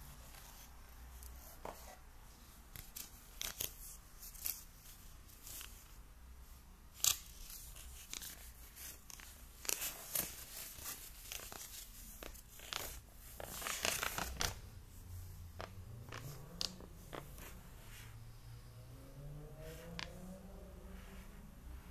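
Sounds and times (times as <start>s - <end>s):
paper crackling and rustling: 2.7s - 6.0s, 6.9s - 14.7s.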